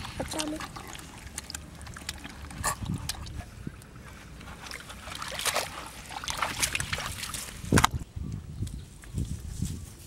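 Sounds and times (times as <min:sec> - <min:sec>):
fish thrashing in water: 0:00.0 - 0:08.0.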